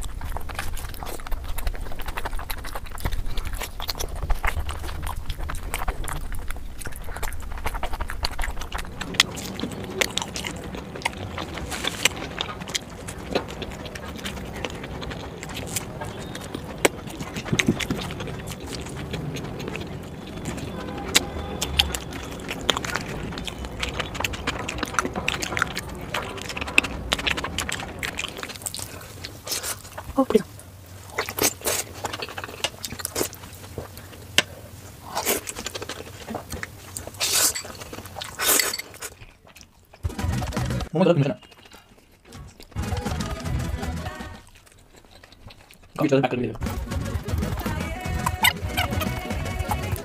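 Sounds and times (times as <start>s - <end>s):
wet mouth clicks and smacks: 0.0s - 30.2s
noodles slurped: 0.0s - 40.8s
close chewing: 0.0s - 50.0s.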